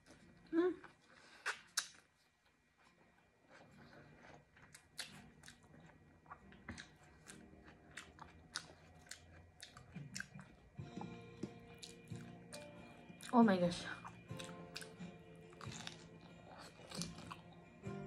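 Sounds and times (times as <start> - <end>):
chewing crunchy onion ring: 0.0 - 18.0
wet mouth clicks: 1.4 - 2.0.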